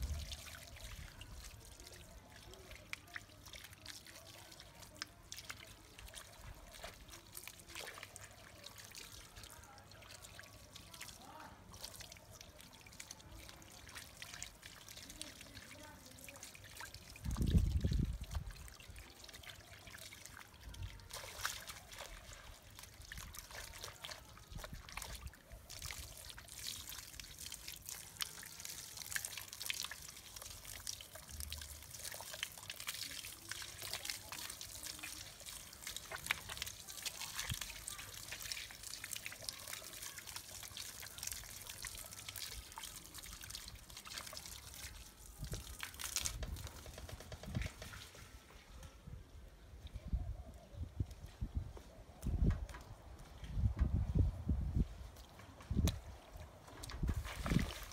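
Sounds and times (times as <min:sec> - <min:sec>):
hose water splashing on rug: 0:00.0 - 0:48.6, 0:52.2 - 0:57.9.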